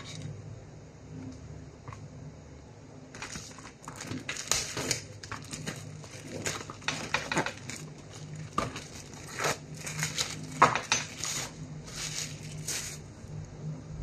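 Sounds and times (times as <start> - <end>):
low steady hum: 0.0 - 14.0
plastic cling wrap crinkling: 3.2 - 13.1.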